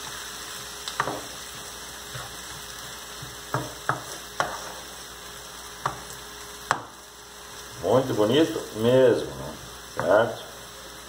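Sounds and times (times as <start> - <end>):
vegetables sizzling in a frying pan: 0.0 - 11.0
wooden spoon knocking on pan: 1.0 - 1.3, 3.2 - 4.6, 5.8 - 6.1, 6.7 - 7.0.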